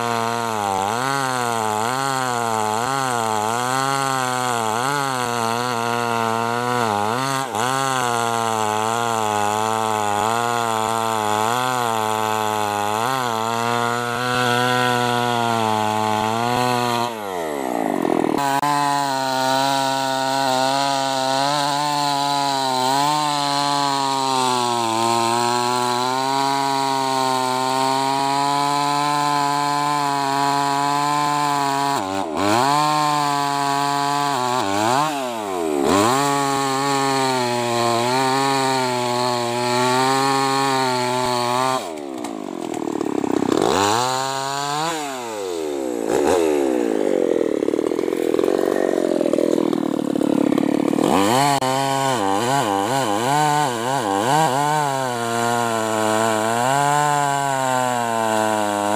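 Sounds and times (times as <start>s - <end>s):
chainsaw cutting wood: 0.0s - 58.9s.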